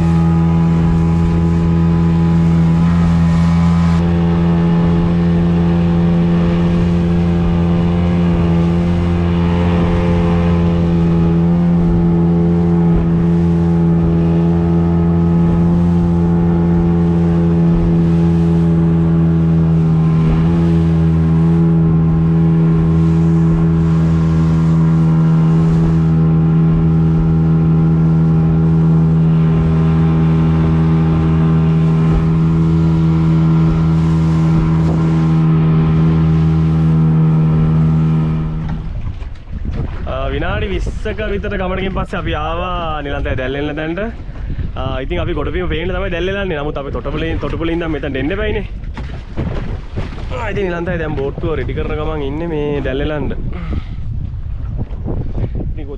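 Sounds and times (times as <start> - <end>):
outboard motor running: 0.0 - 55.9.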